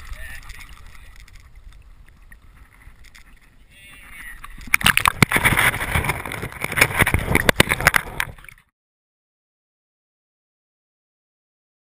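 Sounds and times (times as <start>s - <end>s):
water splashing and sloshing: 0.0s - 8.7s
sharp knocks and handling noise: 4.6s - 8.4s.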